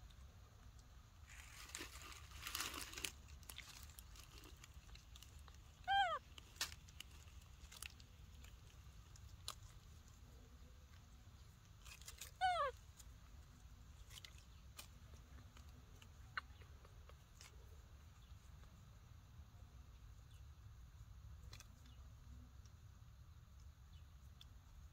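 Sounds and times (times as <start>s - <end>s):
baby monkey squeak: 5.8s - 6.2s, 12.2s - 12.8s.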